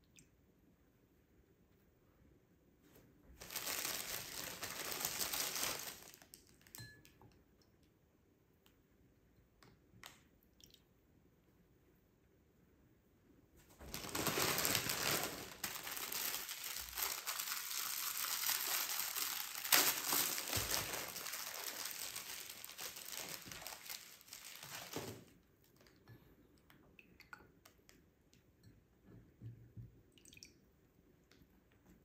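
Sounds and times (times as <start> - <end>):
crinkling and crackling: 3.3 - 6.8, 13.6 - 26.0.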